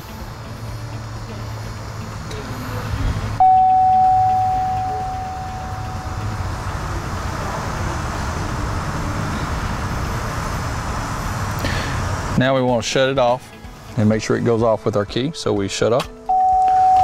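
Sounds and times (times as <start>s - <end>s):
low steady hum: 0.0s - 12.4s
electronic chime: 3.4s - 6.7s, 16.3s - 17.0s.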